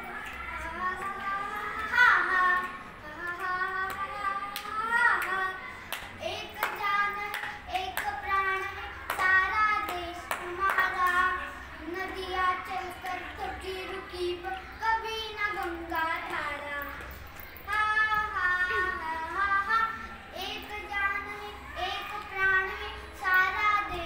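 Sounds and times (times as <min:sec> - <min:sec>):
boy singing unaccompanied: 0:00.0 - 0:24.0
sharp claps: 0:01.0 - 0:11.2.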